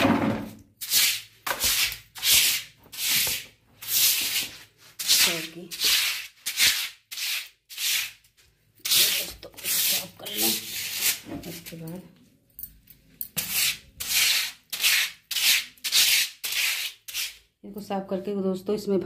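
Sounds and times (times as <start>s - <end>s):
surface being scrubbed: 0.3s - 8.2s, 8.8s - 11.8s.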